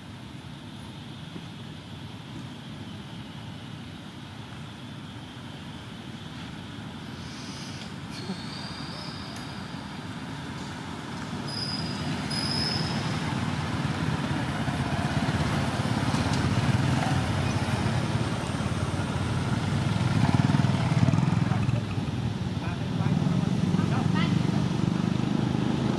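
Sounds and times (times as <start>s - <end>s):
motor vehicle rumble: 5.1s - 25.9s
short high chirps: 11.5s - 13.2s.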